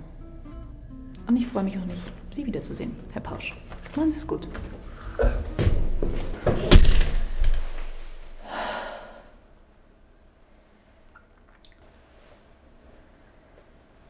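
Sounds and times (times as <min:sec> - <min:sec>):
door thudding shut: 0:05.6 - 0:07.6
woman sighing heavily: 0:08.4 - 0:09.4.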